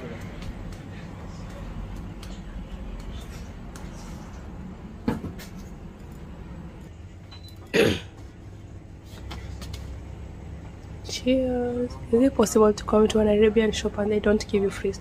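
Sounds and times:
steady low hum: 0.0 - 15.0
person coughing: 7.7 - 8.2.

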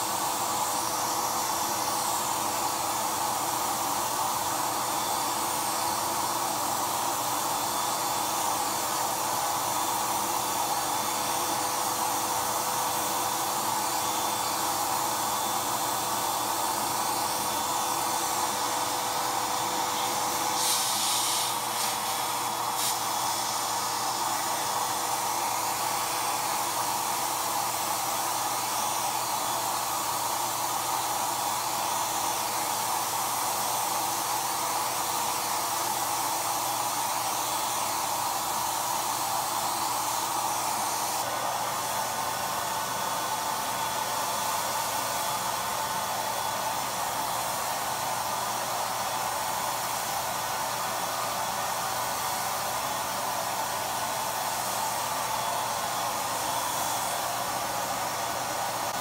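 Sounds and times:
paint sprayer motor drone: 0.0 - 59.0
sharp hiss: 20.0 - 24.8.

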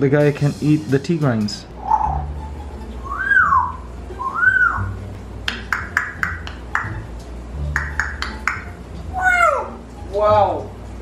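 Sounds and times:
low hum: 1.7 - 9.5
parrot whistling: 1.8 - 7.0
parrot sharp clicks: 5.4 - 7.0, 7.8 - 8.7.

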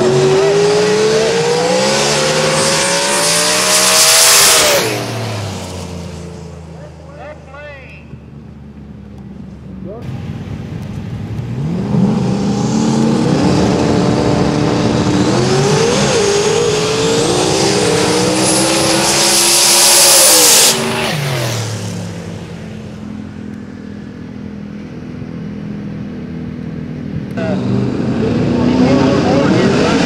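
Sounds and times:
drag car engines accelerating: 0.0 - 30.0.

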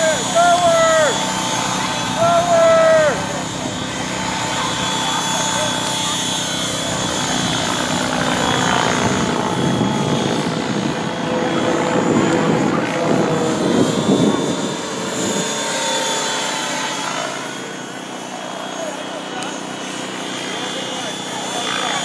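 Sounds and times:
high drivetrain whine: 0.0 - 15.4.

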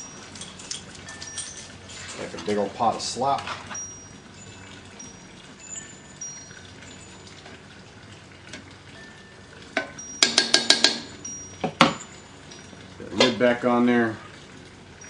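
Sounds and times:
metal striking cast iron pot: 9.7 - 12.2.

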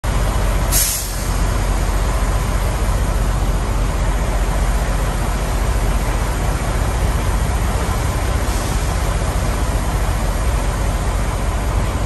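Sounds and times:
semi trucks idling: 0.0 - 12.0
sharp air hiss: 0.7 - 1.5, 8.4 - 9.2.

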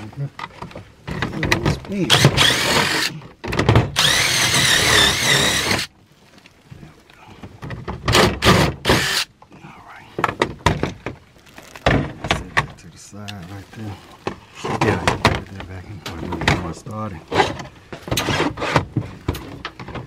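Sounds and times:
cordless drill driving screws: 2.1 - 3.1, 3.9 - 5.9, 8.1 - 9.3.

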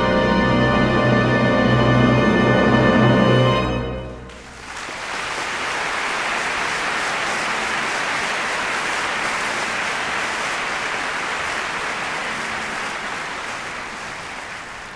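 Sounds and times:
audience applauding: 4.3 - 14.9.

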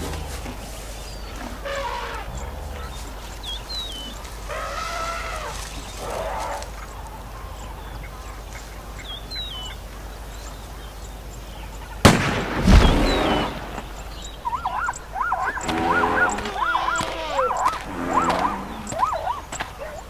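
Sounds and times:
rifle shot: 12.0 - 13.8
high bird-like chirps: 12.7 - 20.0.

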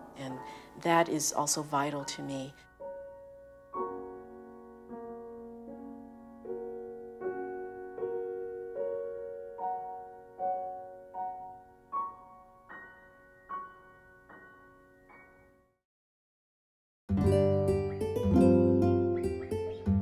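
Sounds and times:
slow piano chords: 0.0 - 15.8.

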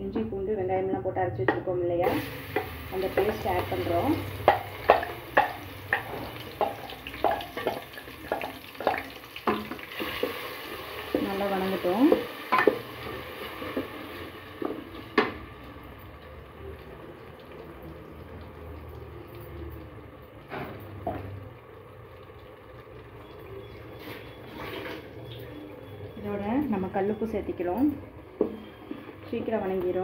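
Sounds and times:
paste sizzling in oil: 2.0 - 15.7
wooden spoon knocking and scraping pot: 2.5 - 14.0, 28.4 - 30.0.

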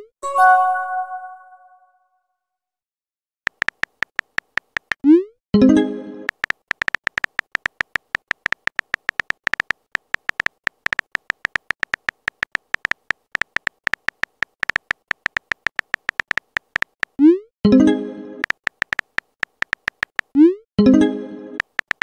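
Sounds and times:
phone keyboard typing clicks: 3.5 - 5.2, 6.3 - 17.3, 18.4 - 20.4, 21.6 - 22.0.

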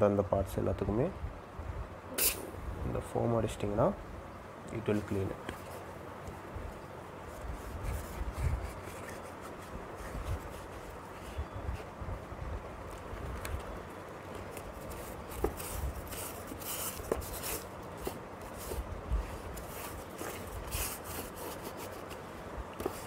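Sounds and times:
cloth wiping helmet: 7.2 - 12.0, 14.4 - 23.0.

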